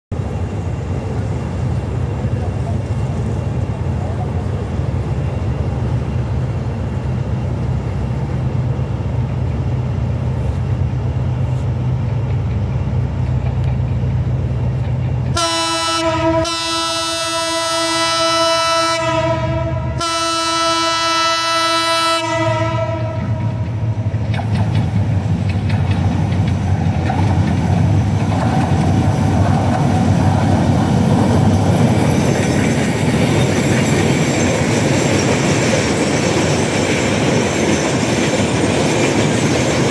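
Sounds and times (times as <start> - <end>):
diesel locomotive engine rumble: 0.1 - 39.9
wheels clattering on rails: 11.3 - 15.4, 23.1 - 39.9
train horn blasts: 15.3 - 23.8.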